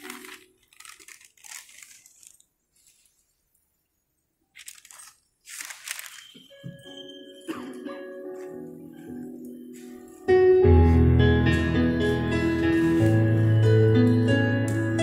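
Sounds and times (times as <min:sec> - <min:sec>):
newspaper crumpling: 0:00.0 - 0:03.4, 0:04.5 - 0:06.6, 0:12.7 - 0:13.4.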